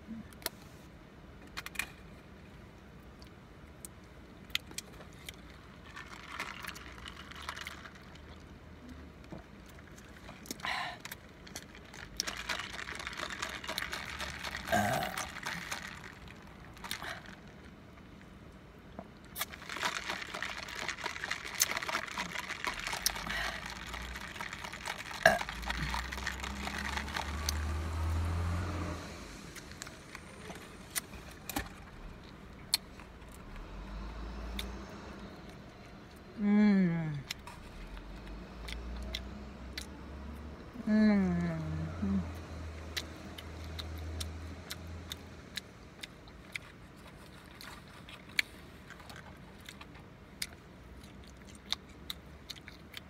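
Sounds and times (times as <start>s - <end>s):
low steady hum: 0.0s - 53.0s
slurping drink through straw: 9.8s - 17.6s, 19.3s - 32.0s
rustling: 19.4s - 28.3s.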